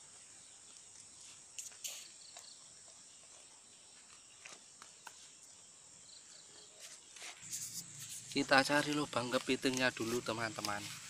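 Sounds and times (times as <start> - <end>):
high-pitched insect chirring: 1.5 - 2.5, 7.4 - 10.8
footsteps in grass: 6.8 - 11.0.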